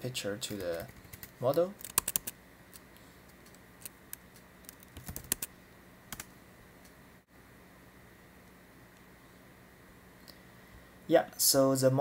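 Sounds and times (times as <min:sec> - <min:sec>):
computer keyboard keystrokes: 0:00.5 - 0:02.8, 0:03.4 - 0:05.5, 0:06.1 - 0:06.3.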